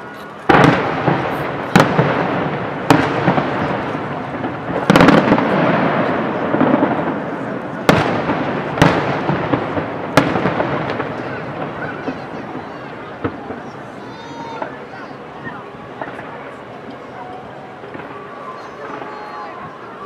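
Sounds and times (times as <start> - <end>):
firework shells bursting: 0.0 - 14.8.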